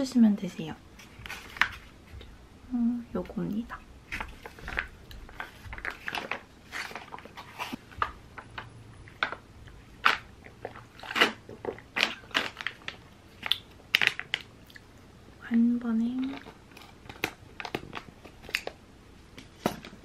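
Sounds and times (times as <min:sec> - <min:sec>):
plastic pouch crinkling: 0:10.0 - 0:14.5.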